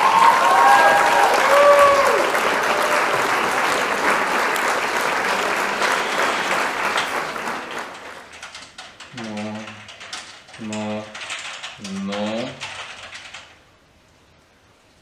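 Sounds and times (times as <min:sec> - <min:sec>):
people cheering: 0:00.0 - 0:08.1
applause: 0:00.0 - 0:08.6.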